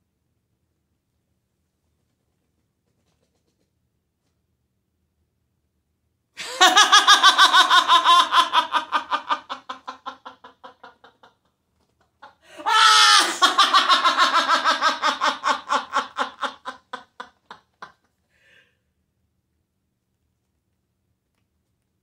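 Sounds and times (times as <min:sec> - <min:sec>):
person laughing hard: 0:06.4 - 0:11.5, 0:12.1 - 0:18.0.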